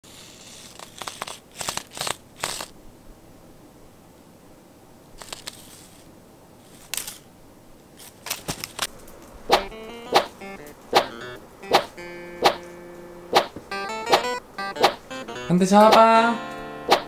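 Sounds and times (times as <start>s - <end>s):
toy lure swishing over carpet: 0.1s - 2.7s, 5.2s - 7.3s.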